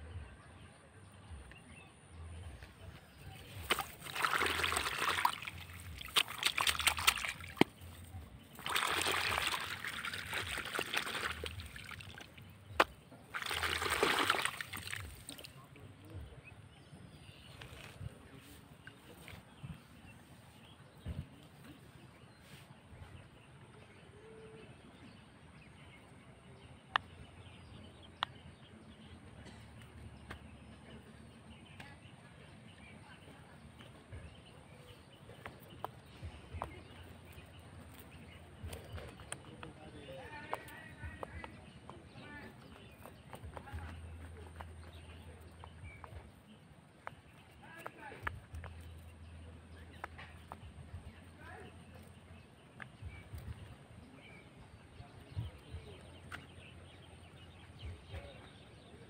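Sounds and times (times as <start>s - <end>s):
hand splashing in muddy water: 3.4s - 15.6s.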